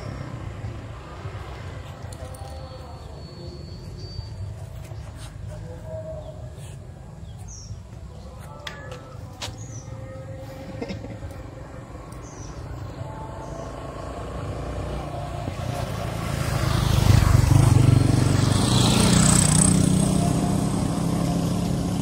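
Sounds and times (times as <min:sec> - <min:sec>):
motorcycle engine running: 0:12.2 - 0:22.0.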